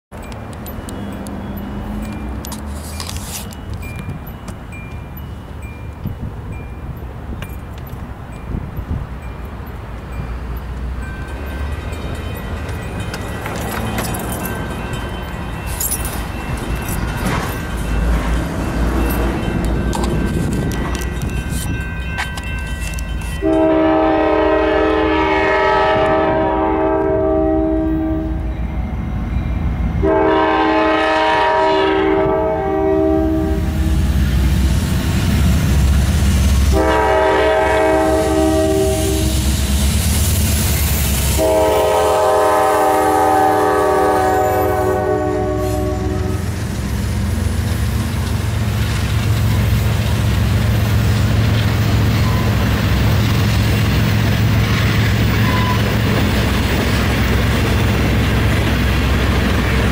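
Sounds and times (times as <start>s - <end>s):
locomotive engines rumbling: 0.1s - 59.9s
train wheels clacking on rail joints: 7.3s - 24.0s
locomotive horn: 22.9s - 28.5s, 30.0s - 34.1s, 36.7s - 39.6s, 41.3s - 46.6s.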